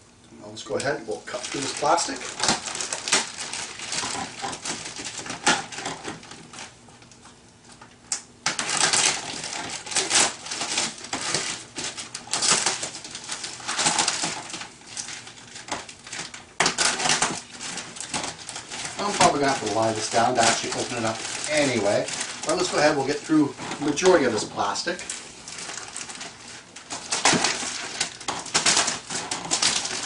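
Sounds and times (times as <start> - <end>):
plastic wrap crinkling and tearing: 0.7 - 30.0.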